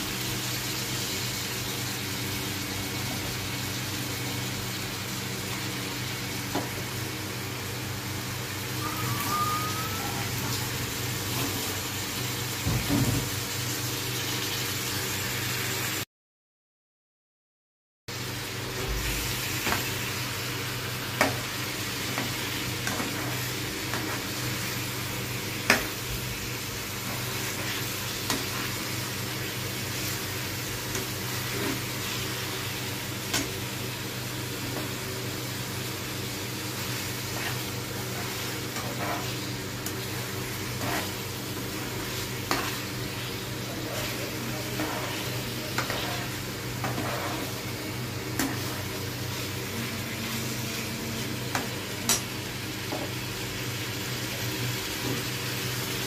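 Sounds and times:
chicken sizzling in oil: 0.0s - 16.0s, 18.1s - 56.0s
steady low hum: 18.8s - 53.9s
metal spatula scraping a pan: 37.3s - 39.4s, 40.5s - 47.7s.

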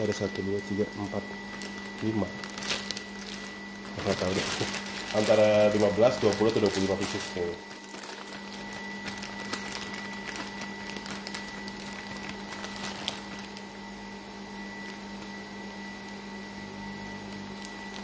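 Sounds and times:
plastic bag crinkling: 0.0s - 13.7s
machine hum with high whine: 0.0s - 18.0s.

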